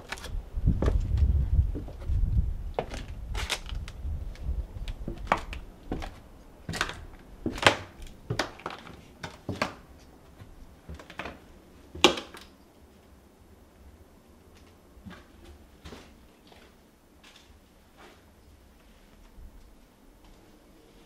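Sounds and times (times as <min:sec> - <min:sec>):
footsteps crunching on debris: 0:00.0 - 0:11.4.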